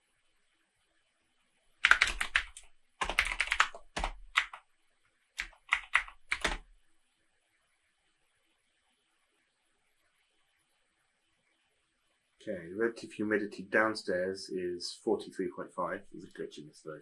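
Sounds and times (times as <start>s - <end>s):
keyboard typing: 1.8s - 4.6s, 5.4s - 6.7s.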